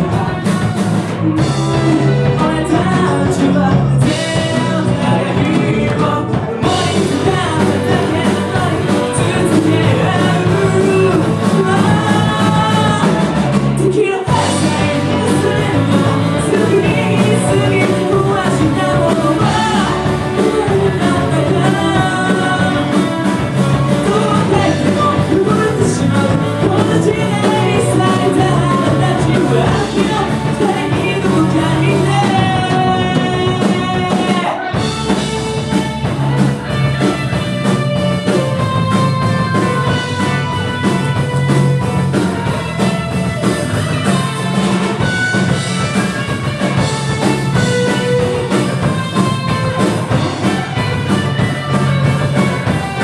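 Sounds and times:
male singer: 0.0s - 35.2s
rock band playing: 0.0s - 53.0s.

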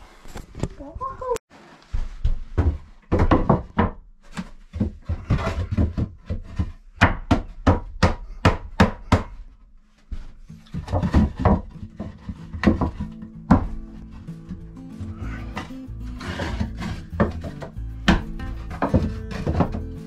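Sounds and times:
wooden boards knocking: 2.5s - 4.0s, 10.6s - 14.7s, 15.5s - 20.0s.

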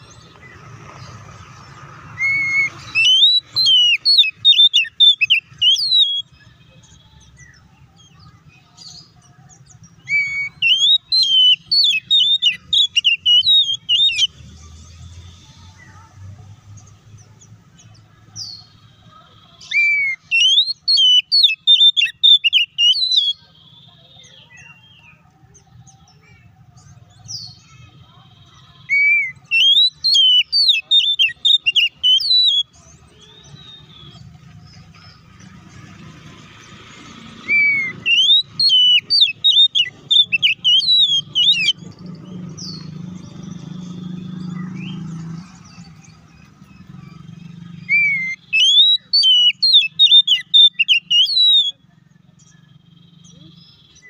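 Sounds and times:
bird singing whistled notes: 0.0s - 17.2s, 17.8s - 54.0s.

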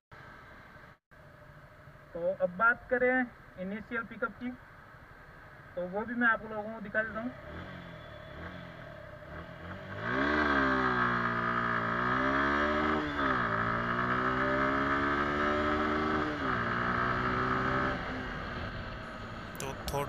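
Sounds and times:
motorcycle engine accelerating: 7.3s - 19.7s.

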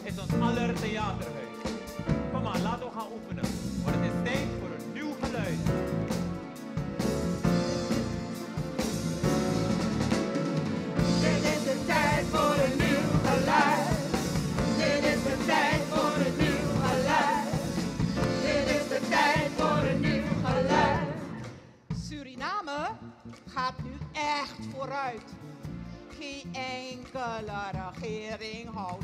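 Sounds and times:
upbeat band music: 0.0s - 29.0s
voices singing: 11.1s - 21.6s.

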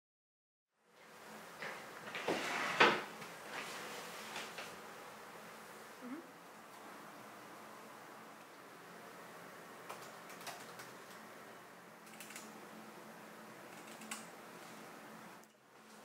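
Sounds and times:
faint steady hiss: 0.8s - 16.0s
laptop keyboard typing: 9.8s - 11.2s, 12.0s - 12.6s, 13.7s - 14.3s.

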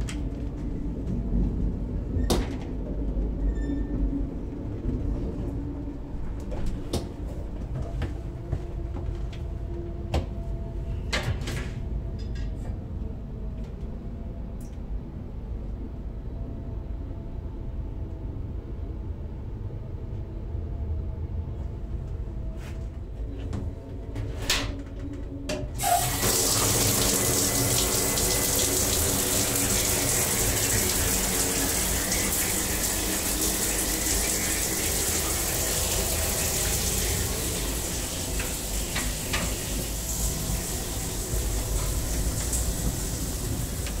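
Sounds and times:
low rumble of moving train: 0.0s - 44.0s
shower water spraying: 25.8s - 44.0s.

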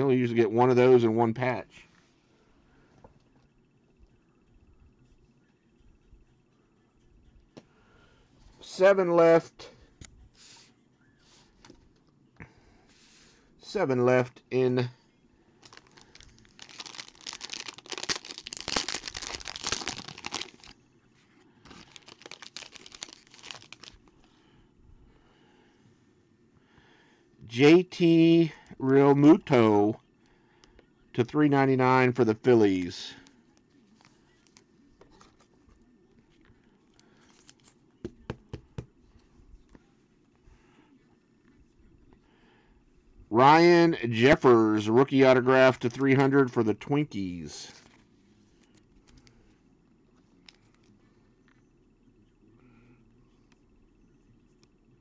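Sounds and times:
foil wrapper tearing and crinkling: 15.6s - 20.8s, 21.7s - 24.1s.

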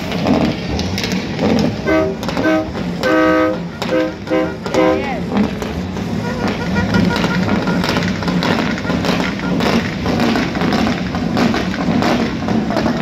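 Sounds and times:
crowd voices: 0.0s - 10.2s
truck engine running: 0.0s - 13.0s.

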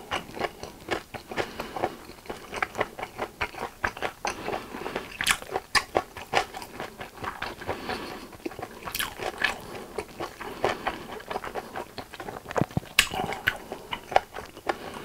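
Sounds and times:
chewing noodles: 0.0s - 15.0s
lip smacks: 11.4s - 14.8s
wet mouth clicks: 12.1s - 14.3s.

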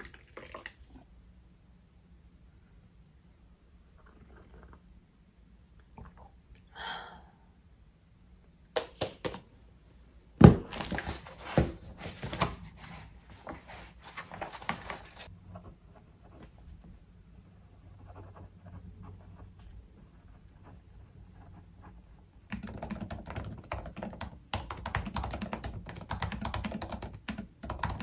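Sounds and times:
paper rustling and pages turning: 10.4s - 15.3s.

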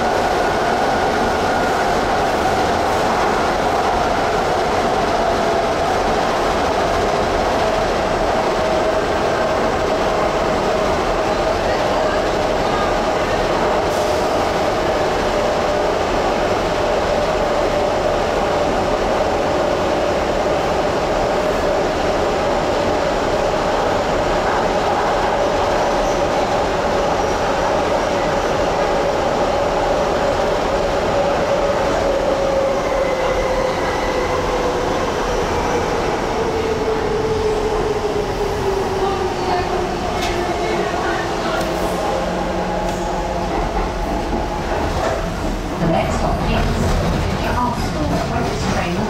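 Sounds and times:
train wheels rumbling on rail: 0.0s - 49.0s.

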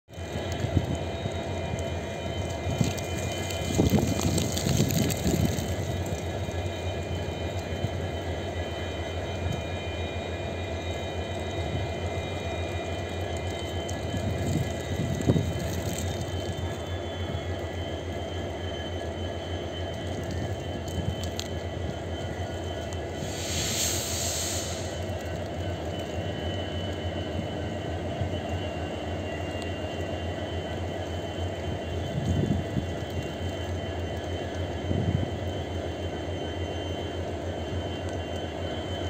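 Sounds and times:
freight train wheels rumbling: 0.1s - 39.0s.

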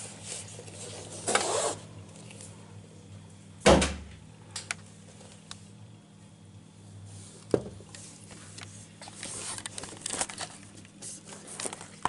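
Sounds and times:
rustling and crinkling: 7.3s - 12.0s.

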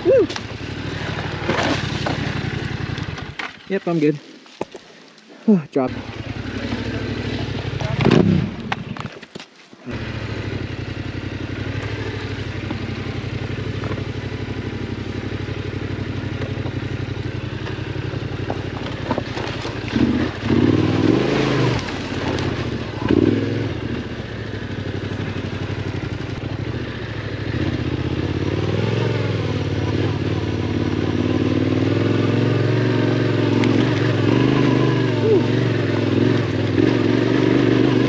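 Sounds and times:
motorcycle engine running: 0.0s - 4.8s, 5.8s - 9.2s, 9.8s - 38.0s
engine throttle bursts: 32.2s - 38.0s.

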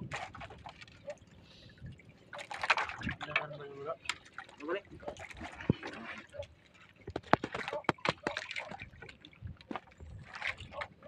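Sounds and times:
water splashing against boat: 0.0s - 11.0s
sharp knocks and clicks: 7.1s - 8.4s.

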